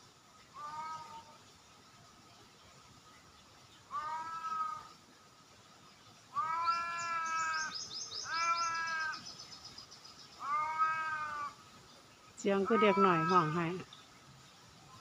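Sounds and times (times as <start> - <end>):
cat meowing: 6.4 - 7.5, 8.3 - 9.1, 10.4 - 11.5.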